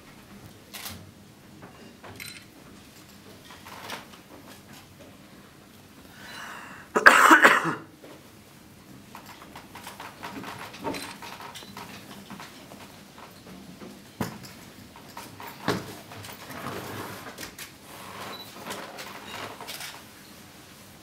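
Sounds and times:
faint breathing: 6.0s - 6.9s
person coughing harshly: 6.9s - 7.9s.

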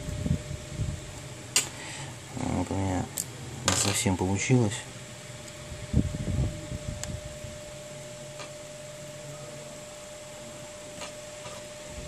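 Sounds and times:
steady background hum: 0.0s - 12.0s
thin whining tone: 6.4s - 12.0s.

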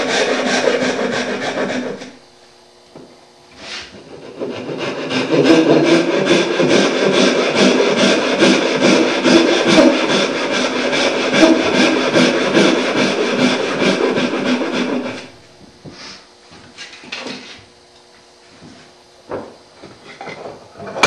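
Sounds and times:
handsaw rasping through wood: 0.0s - 2.2s, 3.6s - 15.4s.

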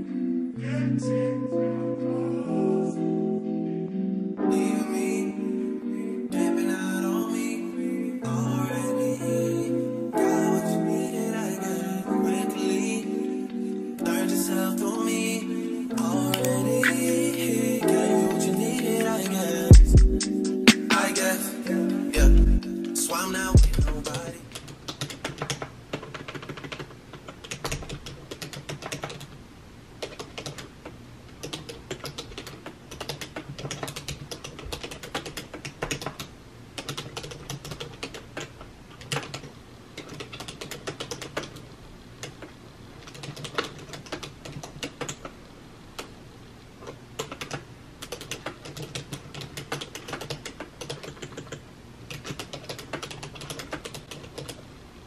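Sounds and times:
typing on computer keyboard: 16.1s - 21.3s, 23.1s - 29.4s, 30.0s - 45.4s, 46.8s - 54.7s.

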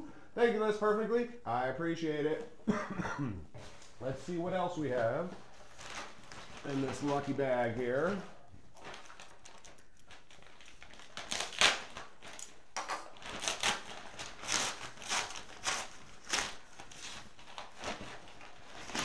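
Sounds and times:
plastic envelope crinkling: 4.4s - 19.0s.

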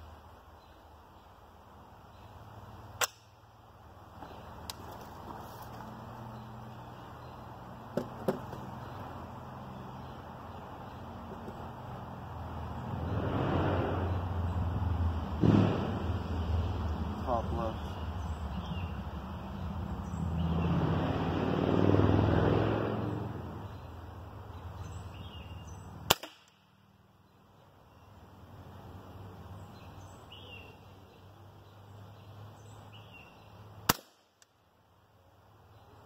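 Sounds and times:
low rumbling noise: 11.8s - 25.2s
air rifle shots: 26.1s - 26.6s, 33.9s - 34.4s.

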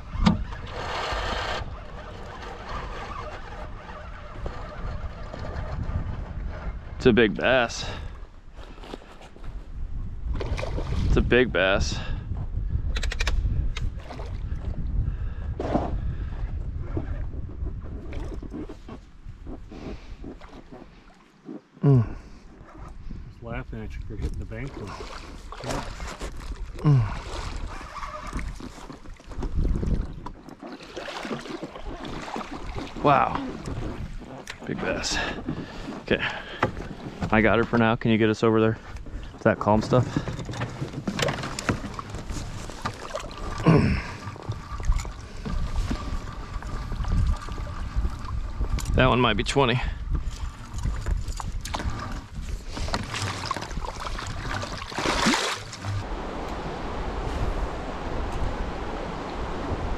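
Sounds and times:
water splashing around a boat: 0.0s - 9.3s, 10.2s - 11.4s, 13.8s - 14.8s, 24.2s - 59.9s
wind buffeting the microphone: 0.0s - 21.1s, 22.0s - 30.6s, 31.2s - 59.9s.

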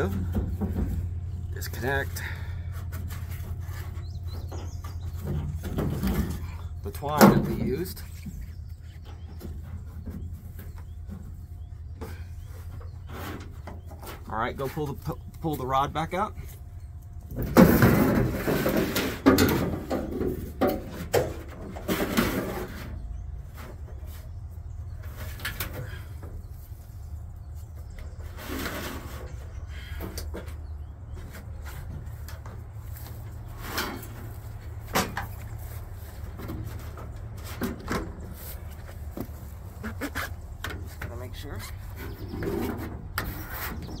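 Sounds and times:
steady low rumble: 0.0s - 13.1s.

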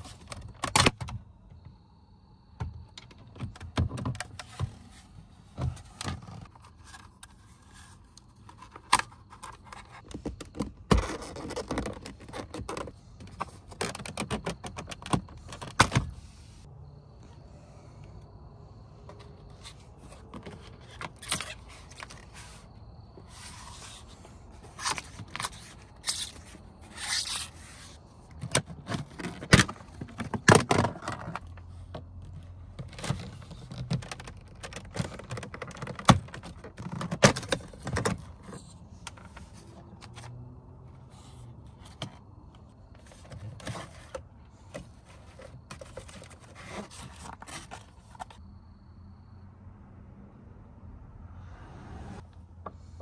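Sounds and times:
plastic trim scraping: 8.5s - 16.1s, 32.8s - 40.2s.

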